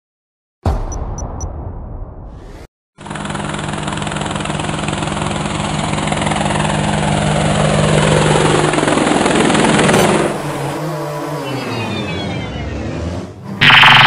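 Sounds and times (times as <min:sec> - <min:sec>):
drone rotors buzzing: 0:09.8 - 0:14.0.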